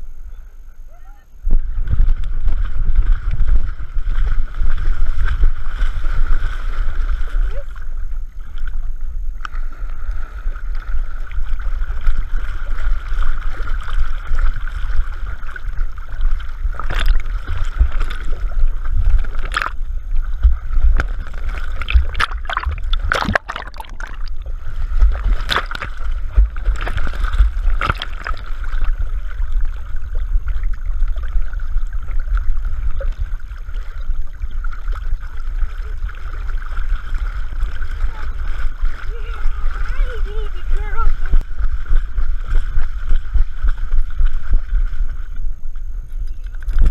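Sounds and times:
muffled water rumble: 0.0s - 46.9s
water sloshing and gurgling: 1.3s - 46.9s.

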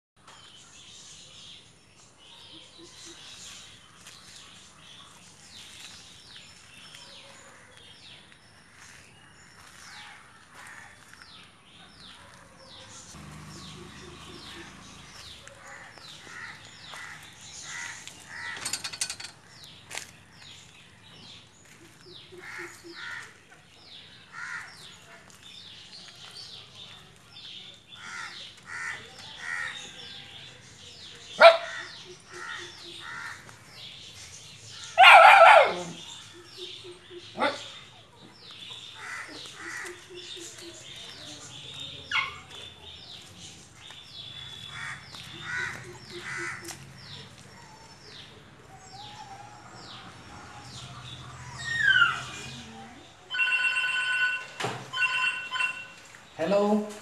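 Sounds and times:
harsh bird calls: 12.0s - 20.6s, 21.2s - 25.1s, 27.9s - 56.8s
high bird chirps: 51.5s - 56.2s.

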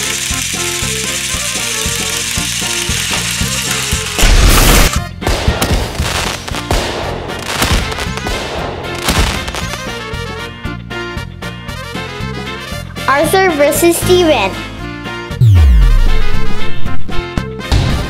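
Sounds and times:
background music: 0.0s - 18.0s
fireworks booms and crackles: 4.2s - 10.2s.

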